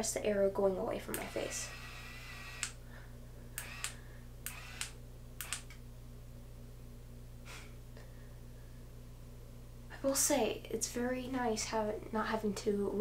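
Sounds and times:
curling iron motor humming: 1.0 - 2.8, 3.6 - 5.8
short sharp clicks: 3.6 - 5.8.

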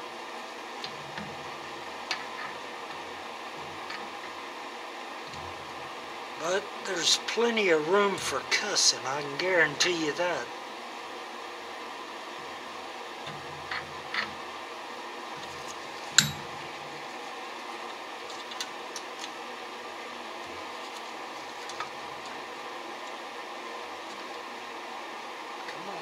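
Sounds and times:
steady background hiss: 0.0 - 26.0.

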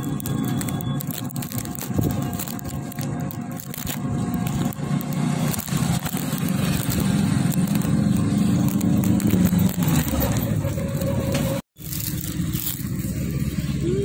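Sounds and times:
auto-rickshaw engine running: 0.0 - 14.0.

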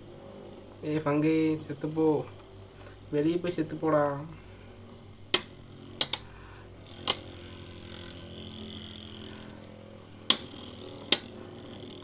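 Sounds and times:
tops clashing metal clicks: 5.3 - 6.3
spinning tops whirring: 5.8 - 12.0.

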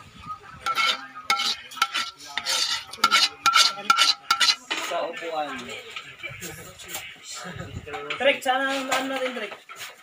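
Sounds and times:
ladle scraping a wok: 0.6 - 5.1.

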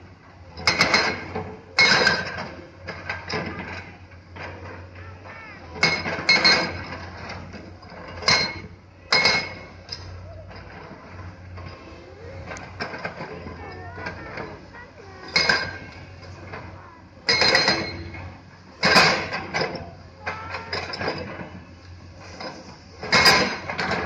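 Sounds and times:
excavator diesel engine hum: 0.0 - 24.0
metal clanking on stone: 12.5 - 21.6, 22.3 - 24.0.

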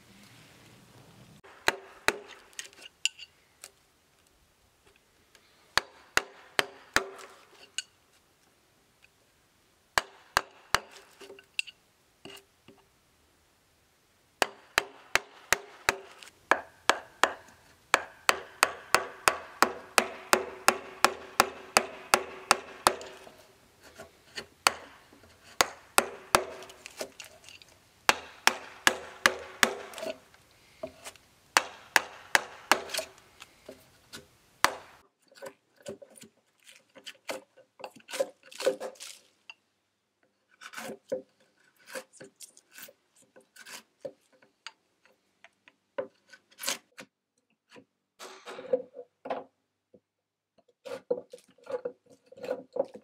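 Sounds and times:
mallet striking chisel: 1.4 - 2.6, 5.8 - 7.4, 10.0 - 11.1, 14.4 - 23.4, 24.6 - 27.2, 28.1 - 30.3, 31.6 - 33.2, 34.6 - 35.0
wood cracking: 24.4 - 30.5.

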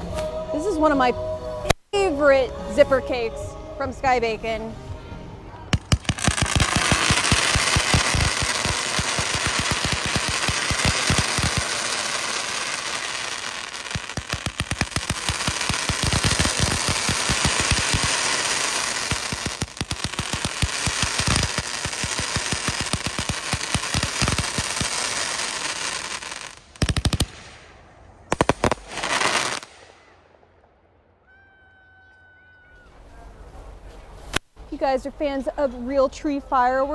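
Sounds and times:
firework cake firing shots: 5.7 - 27.7, 28.3 - 30.0.

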